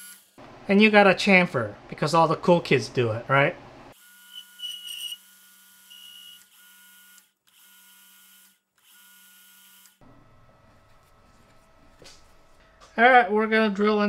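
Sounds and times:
high squeal of tool chatter: 4.3s - 5.3s, 5.9s - 6.5s.

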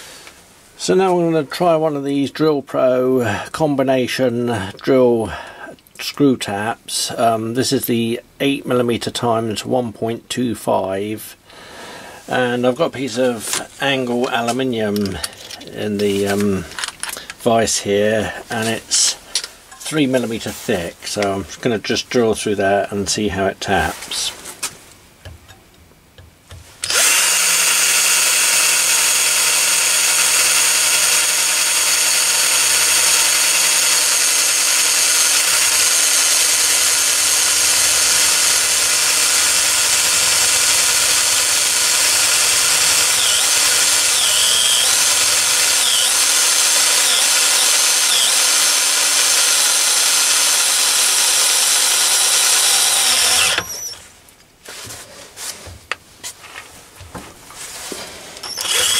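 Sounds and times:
cordless drill running: 26.8s - 54.0s, 58.4s - 58.9s.

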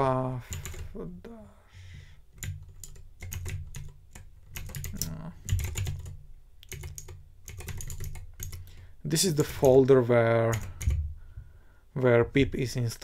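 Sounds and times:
mechanical keyboard typing: 0.5s - 0.9s, 2.4s - 8.7s, 10.5s - 11.0s.

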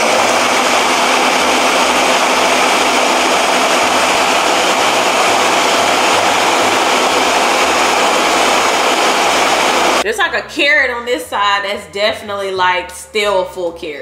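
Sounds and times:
blender motor whirring: 0.0s - 10.0s.

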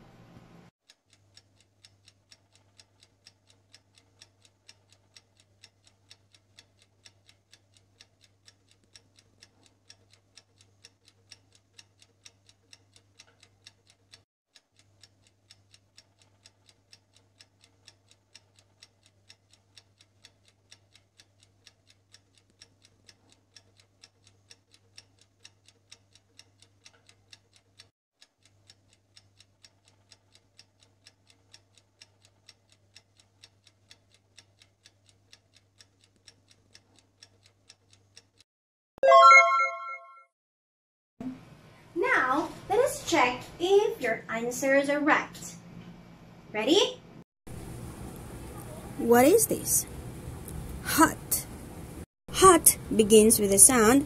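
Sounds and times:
clock ticking: 0.8s - 38.5s, 52.3s - 54.0s.

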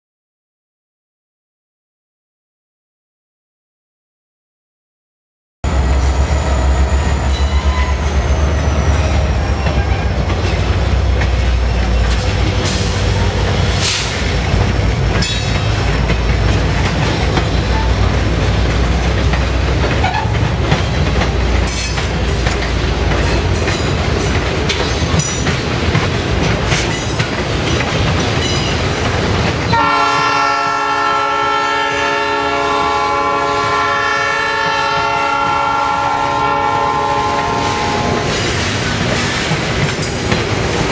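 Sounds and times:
diesel locomotive horn: 5.6s - 10.3s, 29.7s - 38.5s
freight train rumbling past: 5.6s - 40.9s
train wheel screech: 5.7s - 10.8s.

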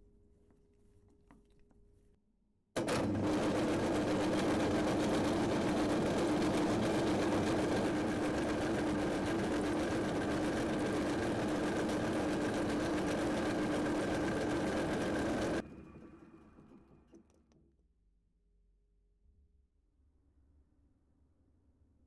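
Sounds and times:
lathe motor hum and whine: 2.8s - 15.6s.

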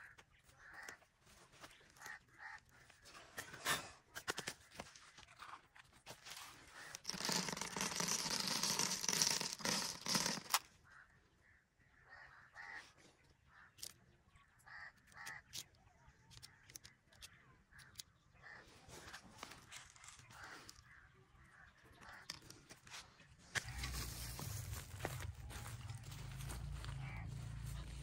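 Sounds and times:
birdseed pouring onto card: 6.8s - 10.6s
seed taps and rustles: 6.8s - 10.6s.

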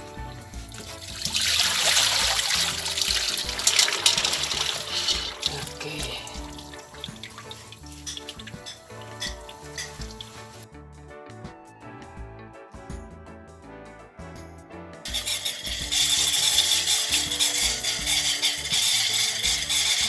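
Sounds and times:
background music: 0.0s - 20.0s
water pouring and splashing: 0.4s - 10.6s, 15.1s - 20.0s.

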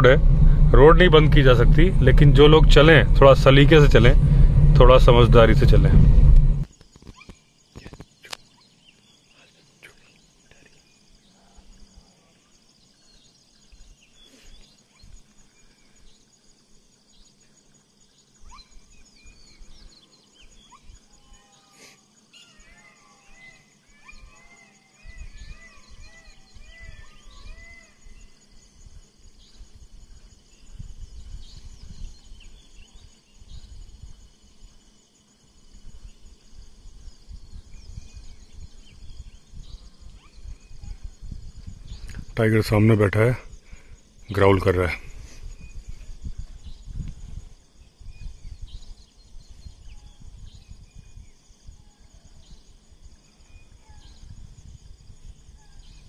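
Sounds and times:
faint low rumbling: 0.0s - 6.7s, 35.7s - 56.0s
high insect buzz: 6.6s - 56.0s
bird short arched calls: 20.7s - 28.0s.

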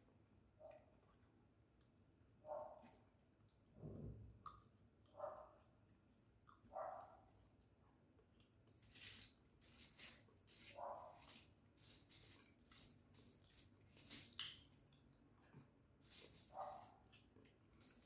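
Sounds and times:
aluminium foil crinkling: 8.8s - 14.8s, 16.0s - 17.2s, 17.8s - 18.0s.

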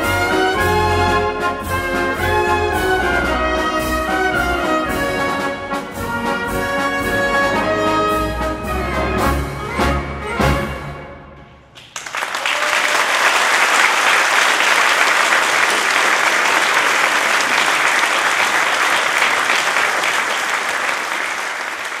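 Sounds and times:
brass band chord: 0.0s - 11.4s
audience applause: 11.8s - 22.0s.

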